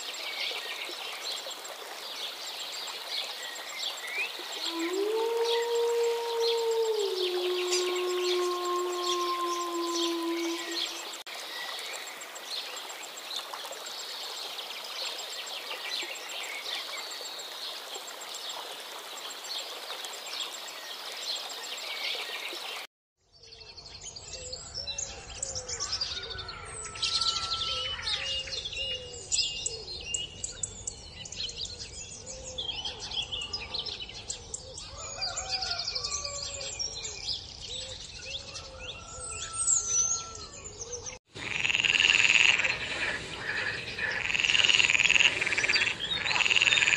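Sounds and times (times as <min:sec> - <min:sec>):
birds chirping: 0:03.3 - 0:11.3, 0:40.2 - 0:46.9.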